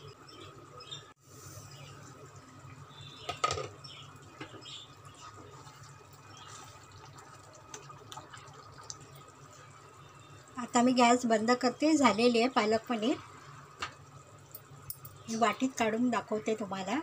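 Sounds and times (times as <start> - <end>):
gravy bubbling in a pan: 1.2 - 14.8.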